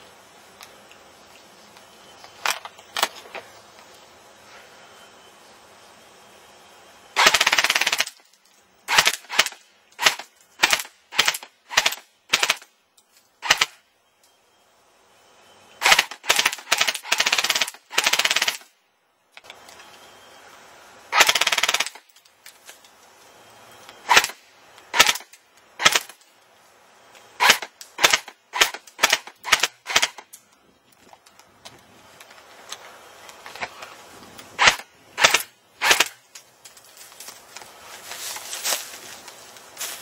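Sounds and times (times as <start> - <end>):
airsoft gun rapid fire: 7.2 - 8.2, 8.9 - 12.6, 13.4 - 13.8, 15.8 - 18.7, 21.1 - 22.0, 24.1 - 26.1, 27.4 - 30.2, 34.6 - 36.2
airsoft gun single shots: 34.6 - 36.2.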